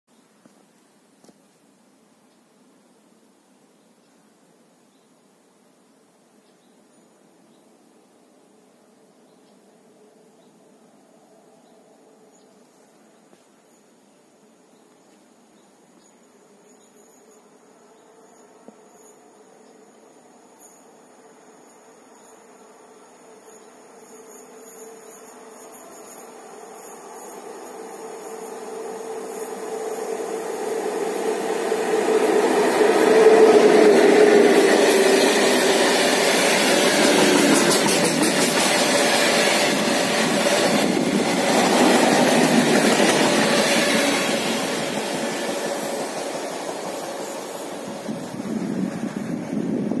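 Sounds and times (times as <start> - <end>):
electric locomotive hum: 16.6 - 50.0
train wheels clattering on rail: 23.5 - 49.7.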